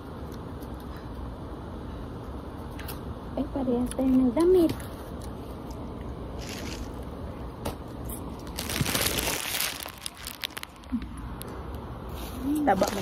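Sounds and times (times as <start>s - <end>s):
crunching and crinkling handling noise: 4.1s - 13.0s.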